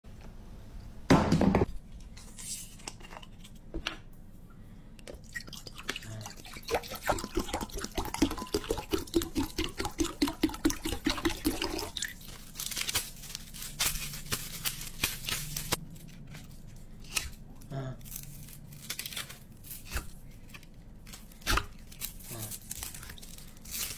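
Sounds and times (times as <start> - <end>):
liquid glugging into glass bowl: 5.2 - 12.1.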